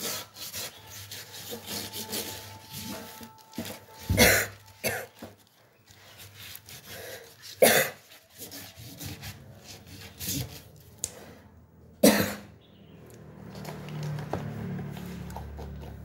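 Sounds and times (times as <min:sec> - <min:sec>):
hand scraping fish in a sink: 0:00.0 - 0:11.3.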